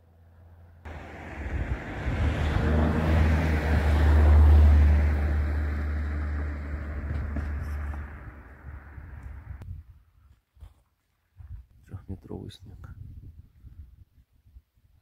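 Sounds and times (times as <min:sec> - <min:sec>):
wind buffeting microphone: 0:00.9 - 0:04.5, 0:06.9 - 0:10.3, 0:11.4 - 0:15.0.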